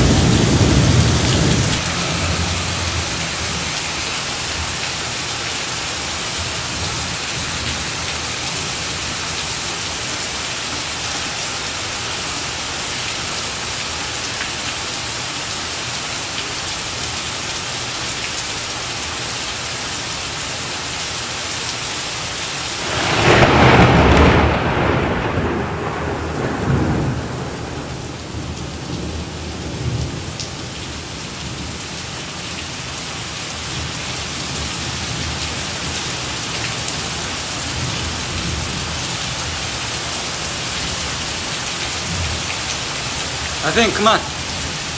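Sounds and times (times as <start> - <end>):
thunder clap rumbling: 0.0 - 3.8, 22.8 - 29.2
heavy rain on street: 0.0 - 44.9.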